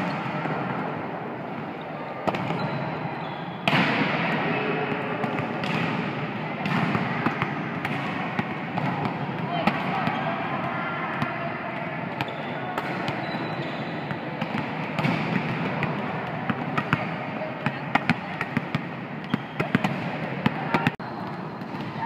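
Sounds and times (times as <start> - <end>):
volleyballs struck and bouncing: 0.0 - 22.0.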